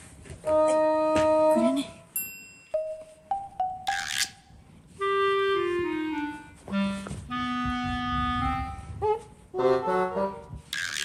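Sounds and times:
woodwind melody: 0.4 - 1.8, 4.9 - 10.8.

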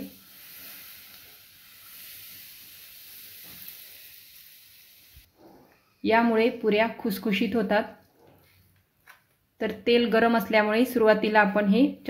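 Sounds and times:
hot oil sizzling on flour: 0.0 - 5.3.

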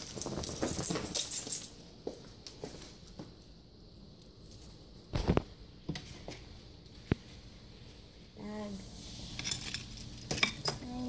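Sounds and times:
small metal pieces jingling: 0.0 - 1.8.

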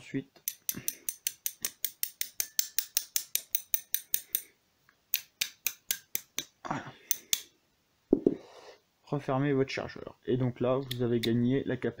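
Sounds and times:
metal rod tapping on steel: 0.4 - 4.5, 5.1 - 6.5.

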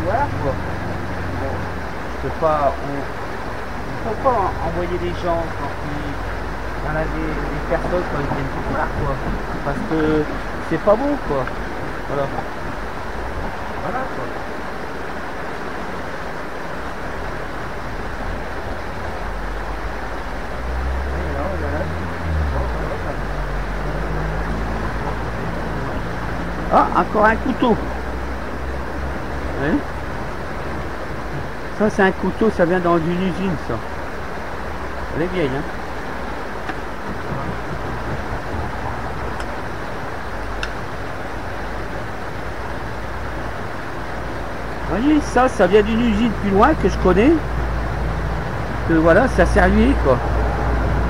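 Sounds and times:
low rumble: 0.0 - 14.5
fast-flowing river rushing: 0.0 - 51.0.

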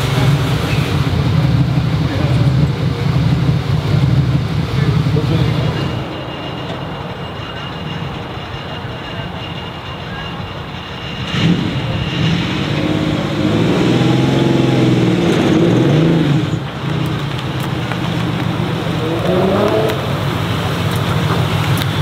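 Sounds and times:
car engine accelerating: 0.0 - 7.4, 11.2 - 22.0.

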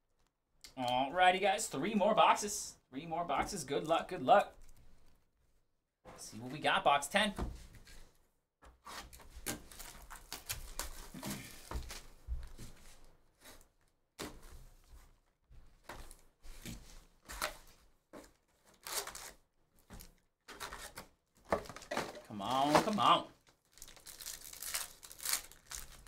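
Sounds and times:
cardboard rustling: 8.8 - 26.0
wrapping tearing and crinkling: 8.9 - 12.2, 18.3 - 26.0.

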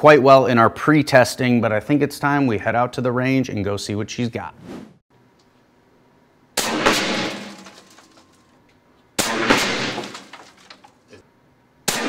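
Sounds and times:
air rifle shots: 6.6 - 7.5, 9.2 - 10.1.

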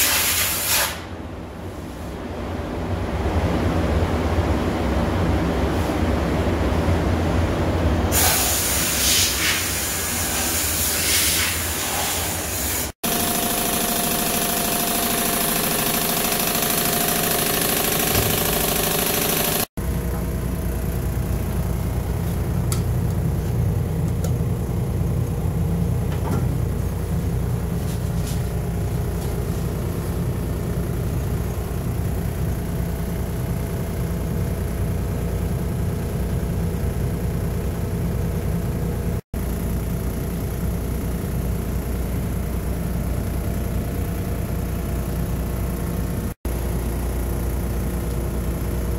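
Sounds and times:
mechanical hum: 0.0 - 48.9
low machine rumble: 13.1 - 48.9.

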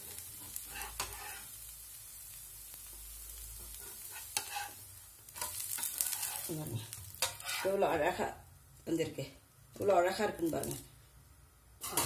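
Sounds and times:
dosa sizzling on a pan: 0.0 - 12.0
metal spatula scraping pan: 0.4 - 1.6, 3.6 - 4.8, 5.4 - 6.5, 7.1 - 7.9, 11.8 - 12.0.

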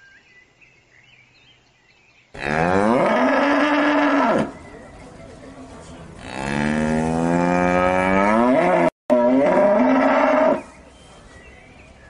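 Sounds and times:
cow mooing: 2.4 - 4.5, 6.2 - 10.6.

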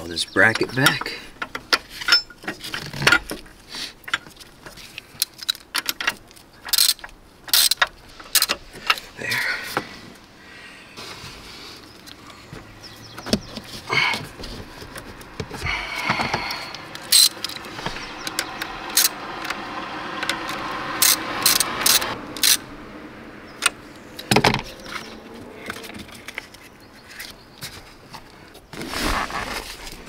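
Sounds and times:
socket ratchet clicking: 16.7 - 19.6, 20.2 - 22.6.

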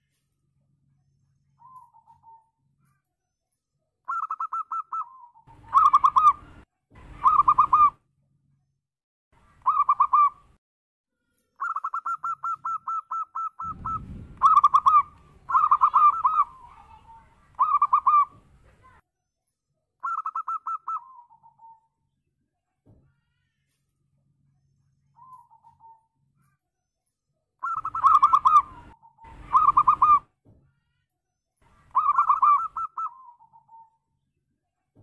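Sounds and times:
dove cooing: 4.1 - 6.5, 7.2 - 8.0, 9.6 - 10.4, 11.6 - 18.4, 20.0 - 21.8, 27.6 - 30.3, 31.9 - 33.9
low rumbling noise: 13.6 - 15.6.

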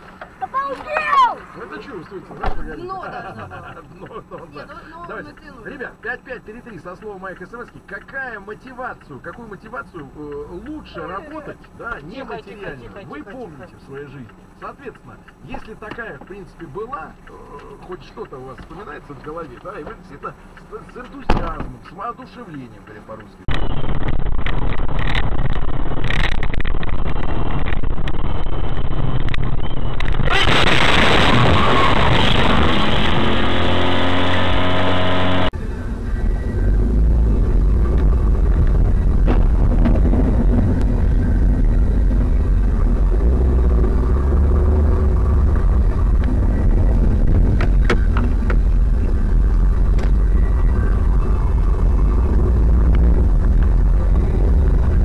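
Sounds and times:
road noise: 0.0 - 55.0
vehicle engine rumble: 0.0 - 55.0.

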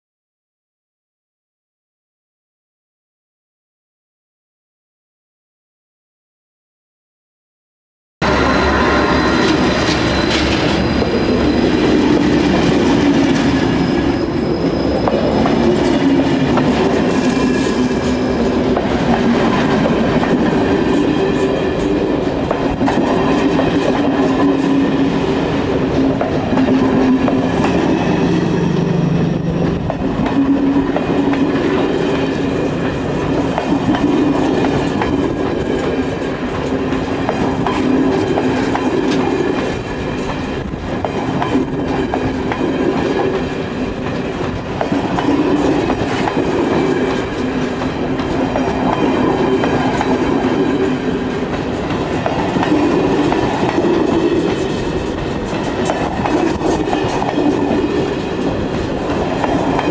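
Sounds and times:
wheels squealing: 8.2 - 16.4
train wheels rumbling on rails: 8.2 - 59.9.

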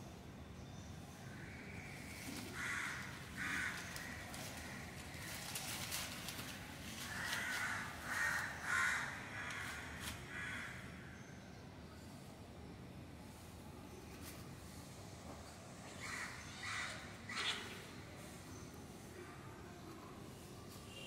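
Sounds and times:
faint rustling: 2.2 - 8.5
bird harsh calls: 15.9 - 18.2.

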